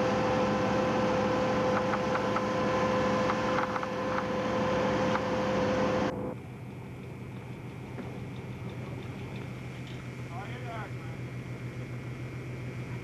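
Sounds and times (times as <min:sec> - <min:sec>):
boat engine humming: 0:00.0 - 0:13.0.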